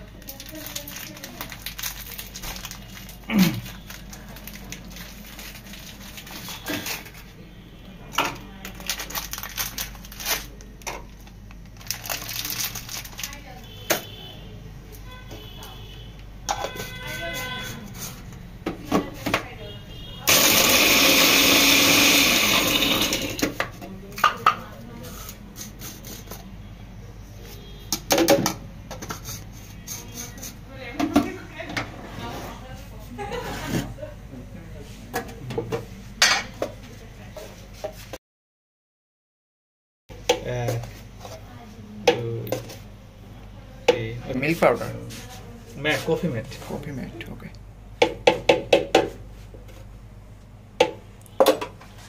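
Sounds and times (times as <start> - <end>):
plastic wrapper crinkling: 0.0 - 7.3, 8.5 - 13.6
mixer grinder motor: 20.3 - 23.6.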